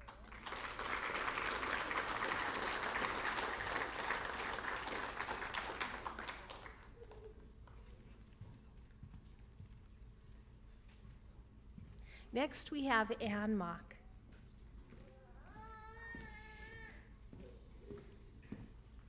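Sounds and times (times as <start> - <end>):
audience applauding: 0.0 - 7.3.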